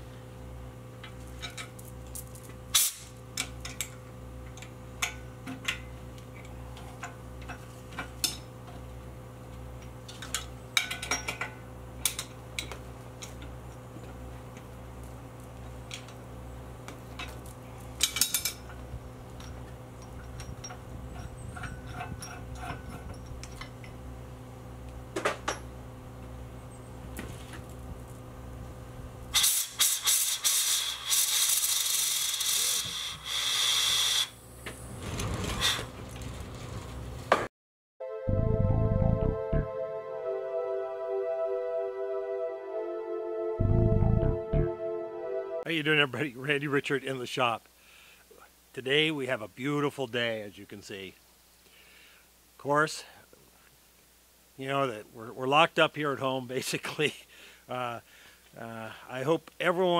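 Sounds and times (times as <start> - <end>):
low electrical hum: 0.0 - 29.8
loud hiss: 29.4 - 34.4.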